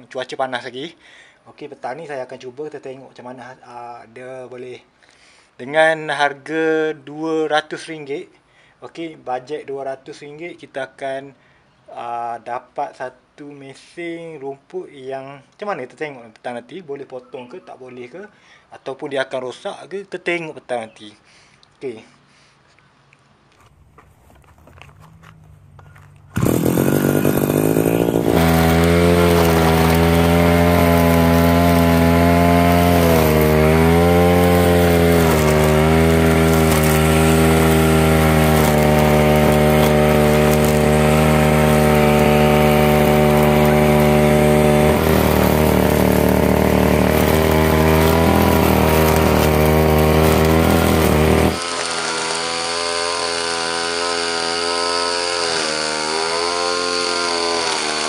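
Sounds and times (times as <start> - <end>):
brush cutter engine running: 24.2 - 58.0.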